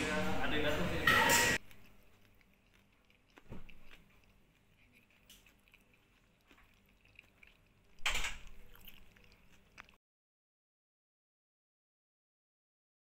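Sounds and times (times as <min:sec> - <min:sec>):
quiet chewing: 0:01.3 - 0:10.0.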